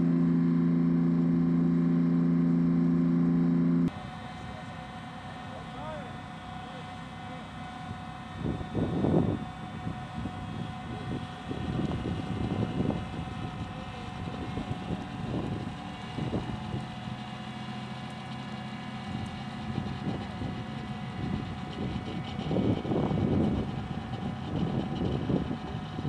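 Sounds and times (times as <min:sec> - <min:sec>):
diesel engine whining: 0:00.0 - 0:26.0
wind on microphone: 0:08.4 - 0:16.8, 0:19.1 - 0:26.0.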